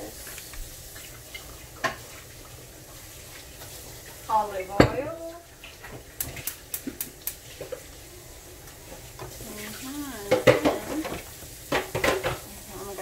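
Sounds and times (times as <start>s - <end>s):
pots and lids clinking: 10.1s - 12.5s.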